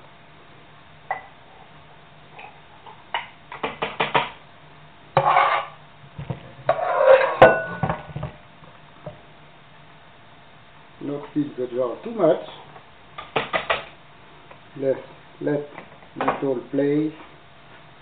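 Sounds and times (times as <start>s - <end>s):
utensil scraping pot: 5.2s - 5.8s, 6.7s - 7.8s.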